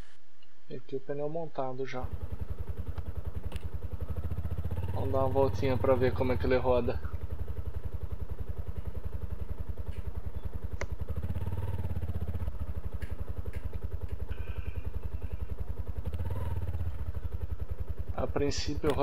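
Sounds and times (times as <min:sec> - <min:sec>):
motorcycle engine riding off: 0:02.0 - 0:19.0
sharp clicks: 0:02.8 - 0:03.7, 0:09.8 - 0:11.5.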